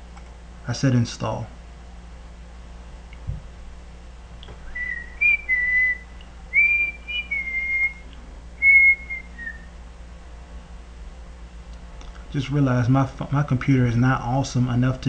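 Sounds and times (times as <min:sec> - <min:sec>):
person whistling a tune: 0:04.7 - 0:08.0, 0:08.6 - 0:09.7.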